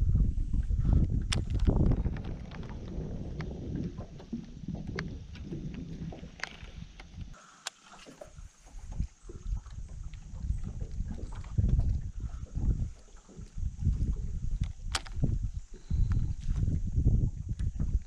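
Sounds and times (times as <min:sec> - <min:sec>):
wind rumbling on microphone: 0:00.0 - 0:07.4, 0:08.1 - 0:18.0
fishing reel clicks and taps: 0:14.6 - 0:15.3.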